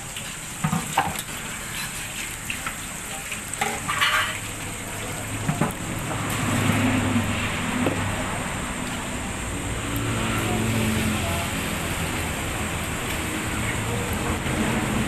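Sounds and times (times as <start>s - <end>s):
food sizzling in a wok: 0.0s - 7.8s, 10.2s - 15.0s
vehicle engine hum: 4.7s - 15.0s.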